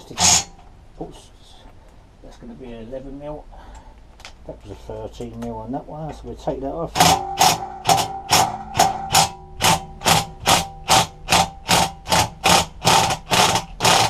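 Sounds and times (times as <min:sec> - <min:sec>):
impact driver hammering bolt: 0:07.0 - 0:14.0.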